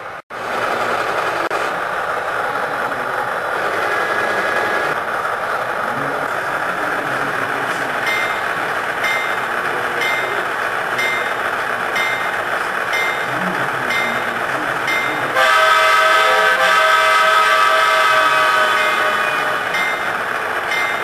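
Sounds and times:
model locomotive engine idling: 0:00.0 - 0:21.0
locomotive bell ringing: 0:07.8 - 0:16.3, 0:17.8 - 0:21.0.

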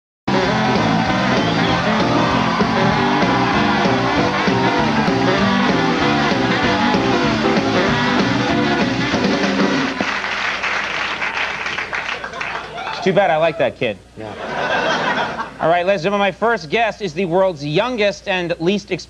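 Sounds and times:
live band playing: 0:00.3 - 0:10.5
audience clapping and cheering: 0:00.3 - 0:13.5.

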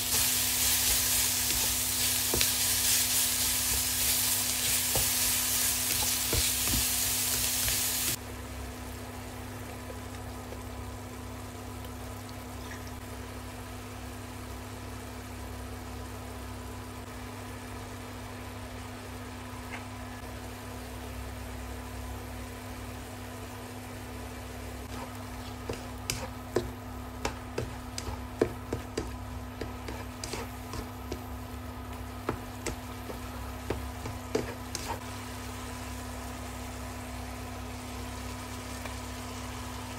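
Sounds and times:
food sizzling in a pan: 0:00.0 - 0:16.9, 0:22.6 - 0:39.9
spatula scraping a pan: 0:24.9 - 0:26.7, 0:27.3 - 0:31.2, 0:33.1 - 0:35.0.

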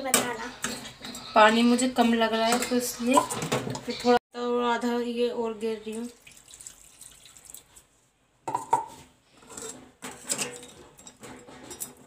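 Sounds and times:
metal spoon scraping pan: 0:00.0 - 0:04.2, 0:09.3 - 0:12.0
water pouring into pan: 0:06.0 - 0:07.9.

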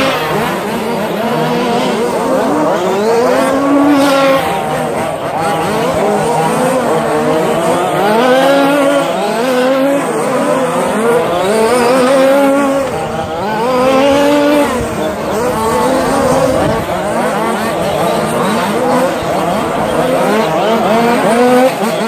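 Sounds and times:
rc truck motors racing: 0:00.0 - 0:22.0.

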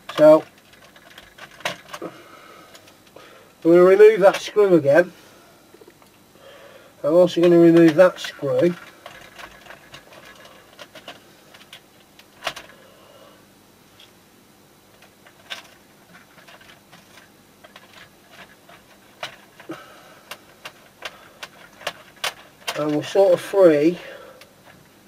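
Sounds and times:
small clicks and knocks of handling: 0:00.0 - 0:02.1, 0:07.4 - 0:12.8, 0:14.9 - 0:23.5.

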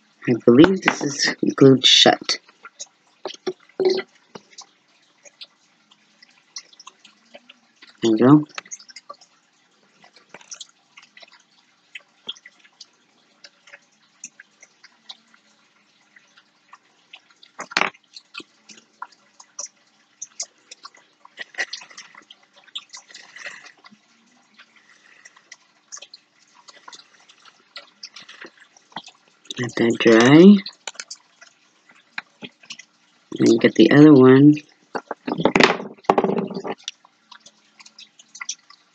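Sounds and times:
light clicks and ticks: 0:10.0 - 0:33.6.

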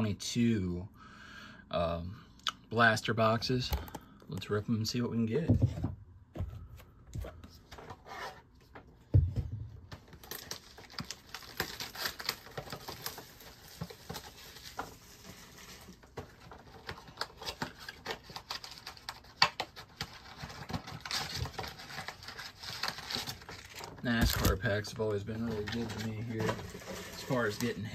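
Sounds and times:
cardboard rustling: 0:05.6 - 0:27.9
plastic wrap crinkling and tearing: 0:10.0 - 0:27.9.

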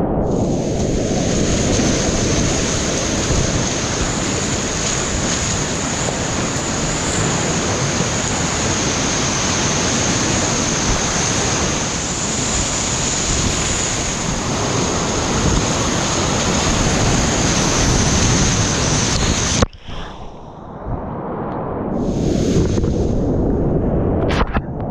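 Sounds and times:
whitewater rapids rushing: 0:00.9 - 0:19.6.

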